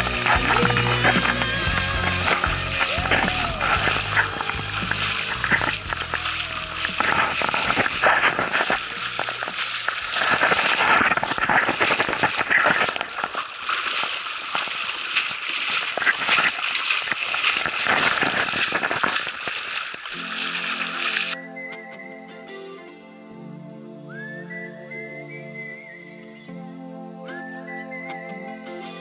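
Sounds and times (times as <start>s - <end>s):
water splashing: 0.0s - 21.4s.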